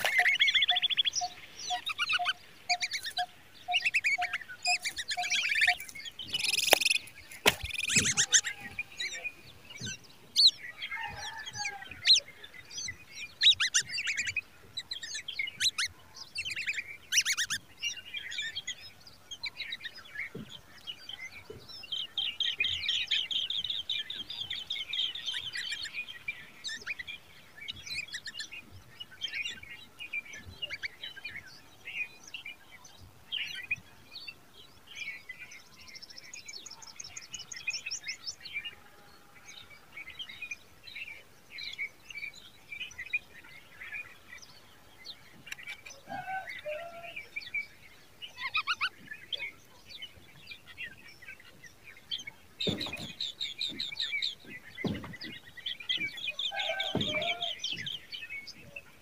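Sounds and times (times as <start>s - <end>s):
bird trill: 0.0s - 18.8s
nestlings chirping: 0.0s - 18.8s, 48.3s - 58.8s.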